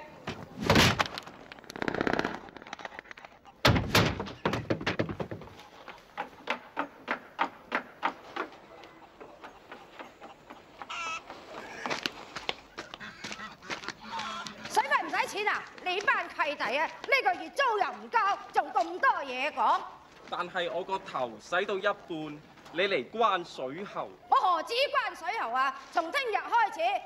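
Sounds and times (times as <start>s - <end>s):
loud bangs and clatters: 3.6s - 5.5s
footsteps on wooden stairs: 3.7s - 8.6s.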